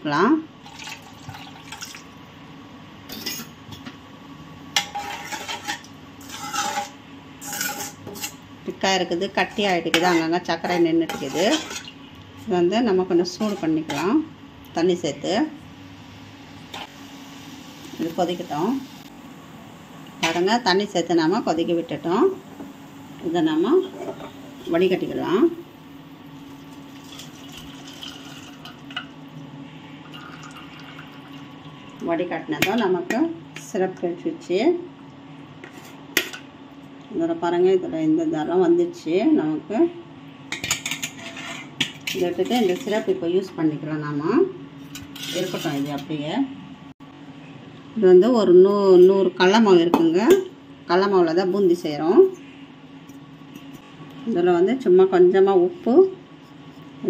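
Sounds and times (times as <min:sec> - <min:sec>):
spoon scraping a metal pan: 0:04.8 - 0:08.4, 0:09.8 - 0:12.0, 0:13.4 - 0:14.2, 0:40.7 - 0:43.1, 0:45.0 - 0:46.0
liquid trickling into steel bowl: 0:27.0 - 0:28.8, 0:30.1 - 0:31.5.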